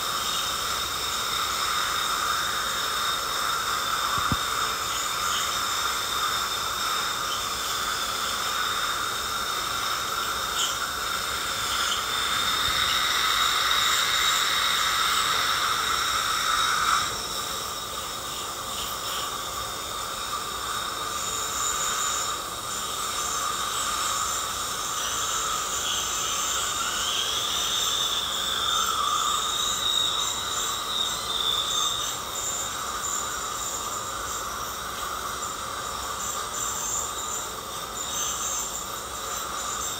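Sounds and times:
ultrasonic dental scaler whine: 0:00.0 - 0:39.9.

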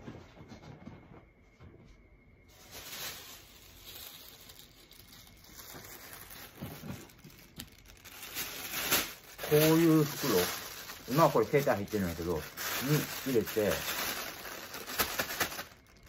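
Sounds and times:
plastic bag rustling: 0:02.5 - 0:16.0.

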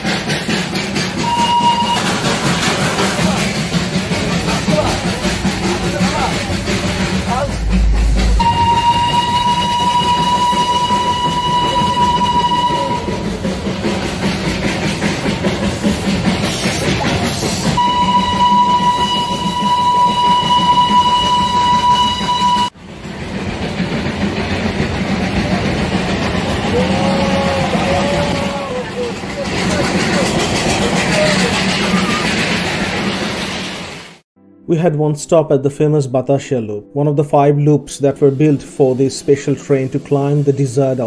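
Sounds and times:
train running noise: 0:00.0 - 0:34.2, 0:38.2 - 0:41.0
steam locomotive whistle blasts: 0:01.2 - 0:02.4, 0:08.4 - 0:13.4, 0:17.8 - 0:22.8.

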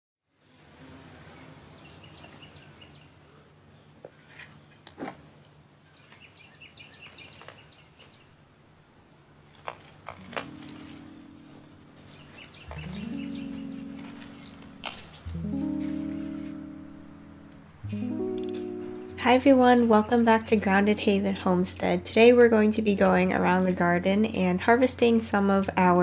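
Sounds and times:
small birds chirping: 0:05.9 - 0:08.3, 0:10.2 - 0:21.2
hand pruners snipping stems: 0:09.5 - 0:11.1
soft music: 0:10.2 - 0:26.0.

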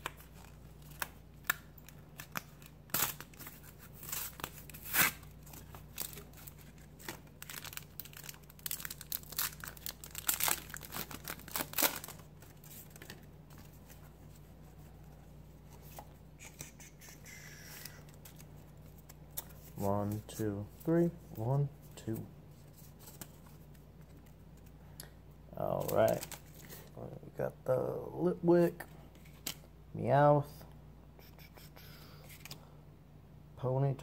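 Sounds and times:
foil wrapper ripping and crinkling: 0:00.0 - 0:13.0.

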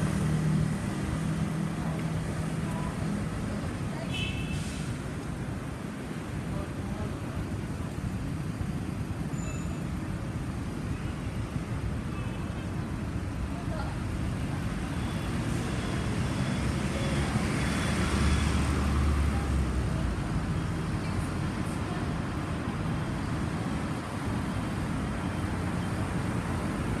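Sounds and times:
hiss of passing cars: 0:00.0 - 0:11.9.

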